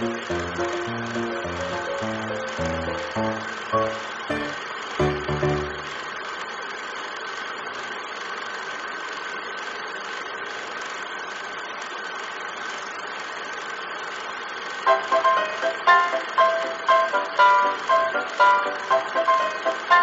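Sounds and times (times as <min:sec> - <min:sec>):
small machine whirring: 0:00.0 - 0:20.0.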